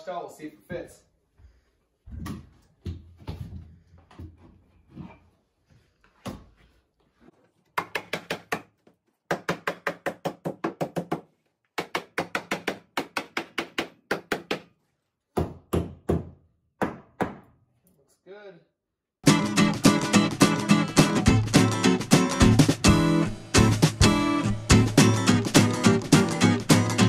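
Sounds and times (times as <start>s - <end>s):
hammer striking wood board: 9.3s - 11.2s, 11.8s - 14.7s, 15.4s - 17.5s.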